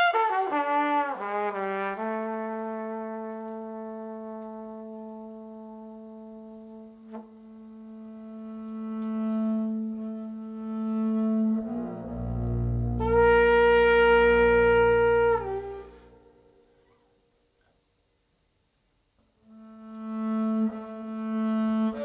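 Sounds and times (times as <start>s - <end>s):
double bass bowed notes: 4.2s - 16.8s, 19.4s - 22.0s.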